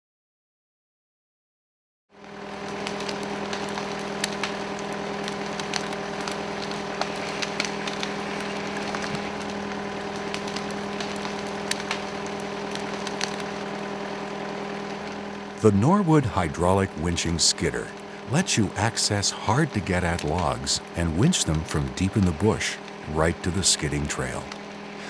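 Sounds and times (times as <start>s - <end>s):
tractor engine humming: 2.2s - 25.0s
twigs cracking and snapping: 2.4s - 15.5s.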